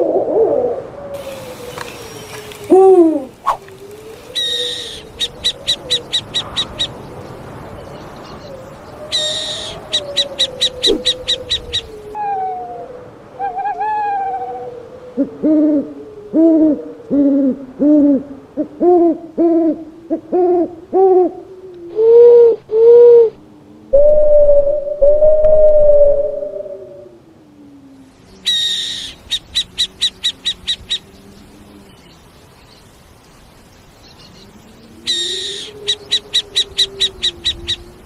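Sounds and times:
owl hooting: 0:00.0 - 0:07.0, 0:08.4 - 0:27.8, 0:28.4 - 0:31.7, 0:34.8 - 0:38.0
owl chattering clicks: 0:01.2 - 0:07.0, 0:09.1 - 0:11.9, 0:28.5 - 0:31.0.

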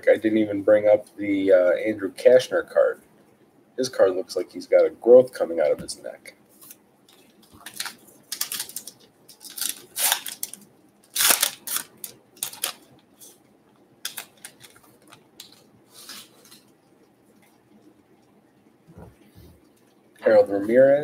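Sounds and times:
card pack crinkling and rustling: 0:06.6 - 0:13.4, 0:14.0 - 0:16.7.

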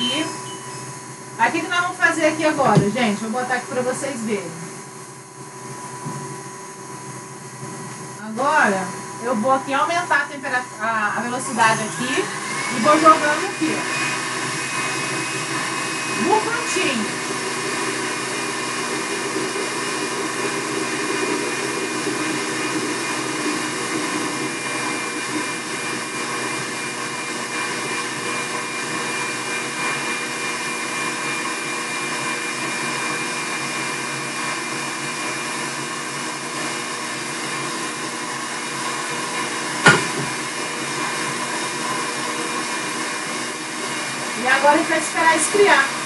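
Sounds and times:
stand mixer whirring: 0:00.0 - 0:46.0
sharp knock: 0:39.8 - 0:40.3.

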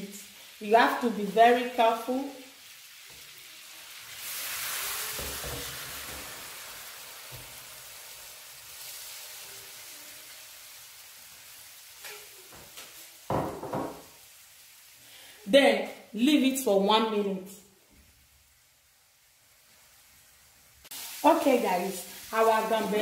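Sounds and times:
prawns sizzling in a pan: 0:00.0 - 0:23.0.

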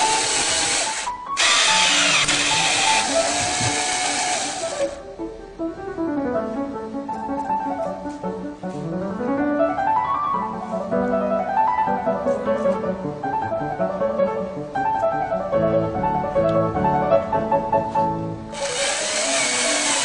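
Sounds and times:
loud steady hissing: 0:00.0 - 0:05.1
piano background music: 0:00.0 - 0:20.0.

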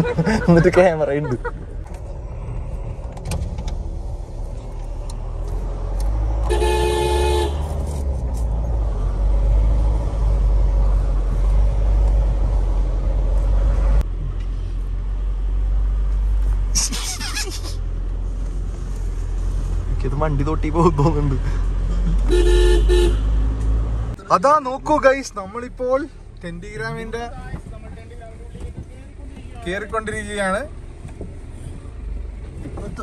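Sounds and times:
car horn: 0:06.4 - 0:08.0, 0:22.3 - 0:23.4.

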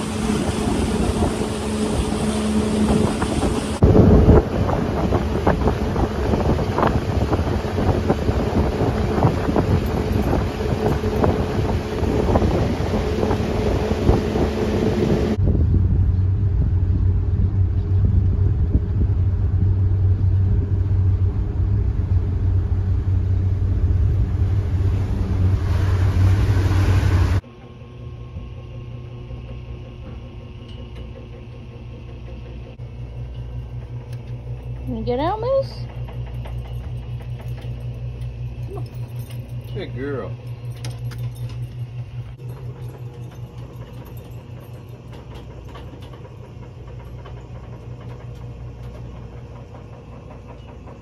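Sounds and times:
wind buffeting microphone: 0:00.0 - 0:27.4
boat motor humming: 0:00.0 - 0:51.0.

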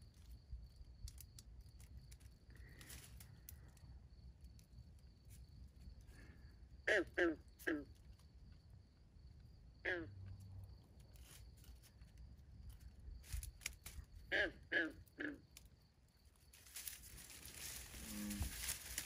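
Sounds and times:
high insect trill: 0:00.0 - 0:19.0
frogs croaking: 0:06.0 - 0:11.4, 0:12.6 - 0:19.0.

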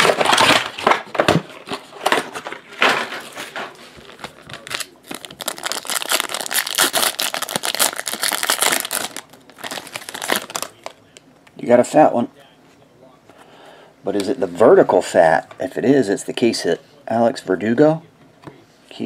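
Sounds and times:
foil wrapper crinkling: 0:03.5 - 0:11.0.

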